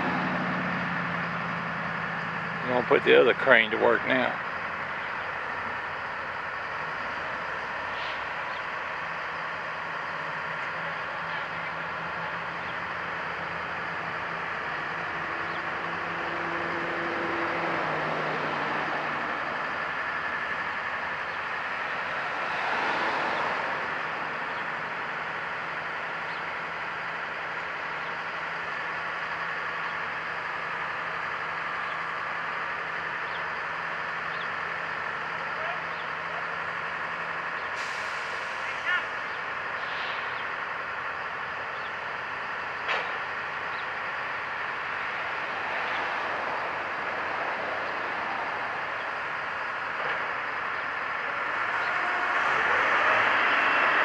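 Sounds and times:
crane diesel engines humming: 0:00.0 - 0:54.0.

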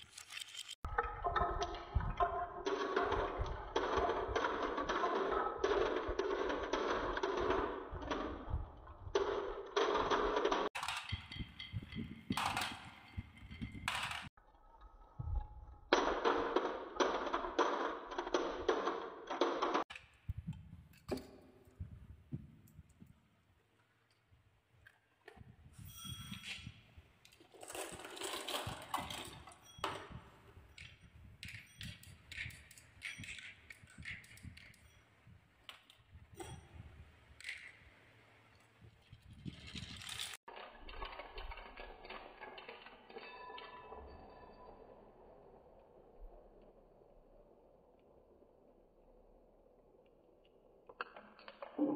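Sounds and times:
marbles rolling on wooden tracks: 0:00.0 - 0:14.3, 0:15.9 - 0:20.6, 0:25.8 - 0:44.6
glass marbles clicking: 0:27.5 - 0:36.8.

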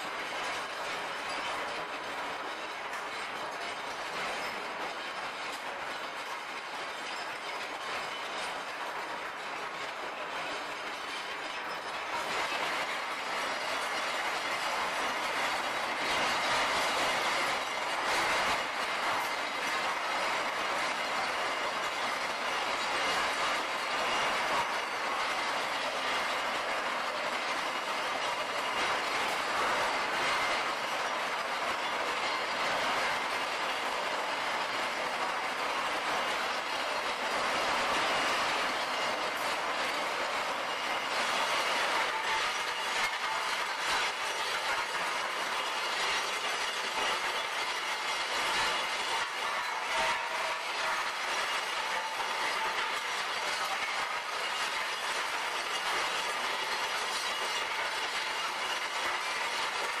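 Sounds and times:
metal pieces tumbling in crusher drum: 0:41.6 - 1:00.0.

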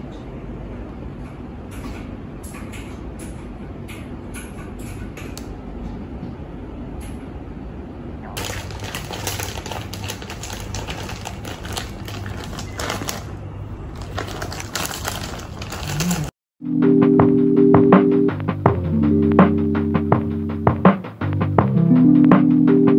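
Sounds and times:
steady low hum: 0:00.0 - 0:22.9
plastic packaging crinkling: 0:08.4 - 0:16.4.

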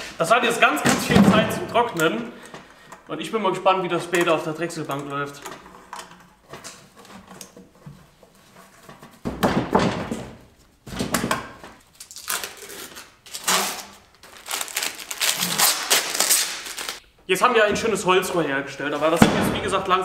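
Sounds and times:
paper tearing off wood: 0:11.9 - 0:17.0.

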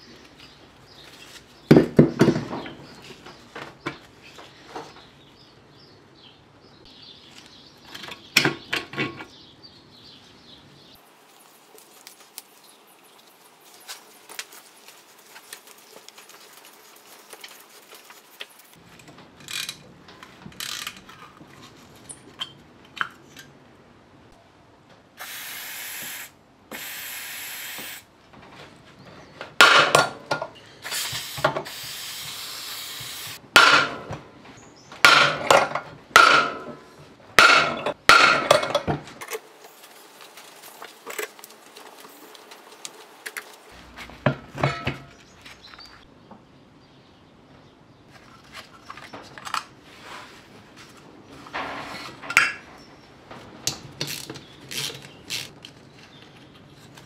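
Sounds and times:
metal knocks and clanks: 0:44.1 - 0:45.3.

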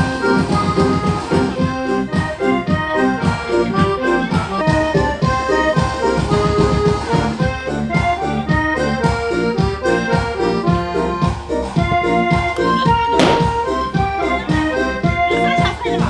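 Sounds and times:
busy instrumental melody over beat: 0:00.0 - 0:16.0.

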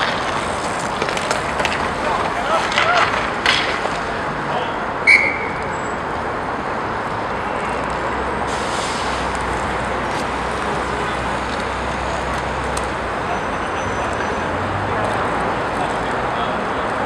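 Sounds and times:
skate wheels rolling on rink floor: 0:00.0 - 0:04.5, 0:09.0 - 0:13.0
short high whistle blast: 0:05.0 - 0:05.7.

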